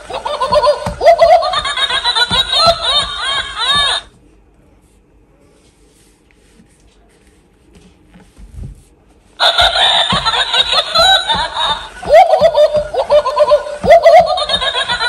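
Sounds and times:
toy electronic giggling: 0:00.0 - 0:04.1, 0:09.4 - 0:15.0.

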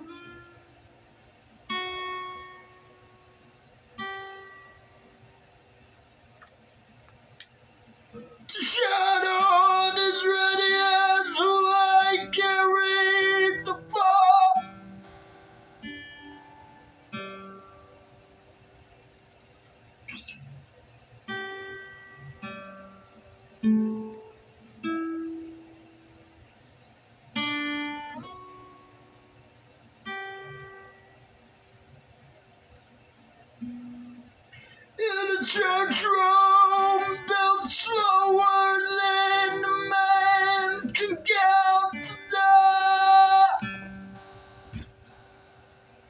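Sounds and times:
acoustic guitar: 0:00.0 - 0:46.0
man singing high notes: 0:08.5 - 0:14.7, 0:35.0 - 0:44.9.

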